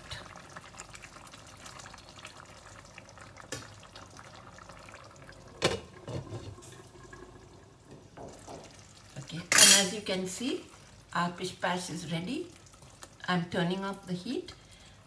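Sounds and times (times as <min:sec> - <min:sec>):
wet stirring of simmering rice: 0:10.6 - 0:11.2, 0:12.4 - 0:13.2.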